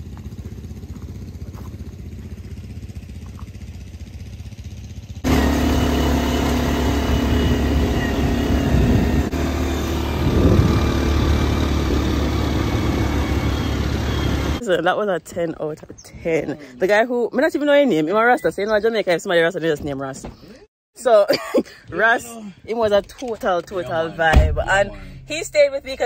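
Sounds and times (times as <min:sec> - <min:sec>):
quad bike engine droning: 0:00.0 - 0:14.6.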